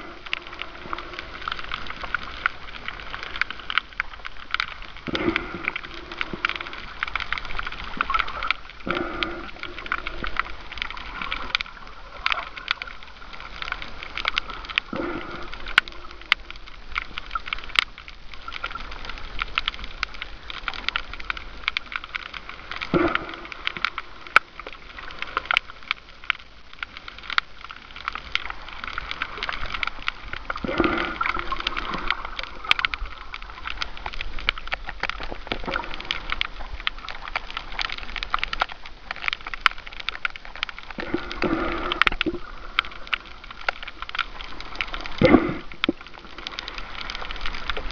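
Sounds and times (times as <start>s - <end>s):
underwater reef crackling clicks: 0.0s - 47.9s
gurgling water swell: 39.0s - 47.9s.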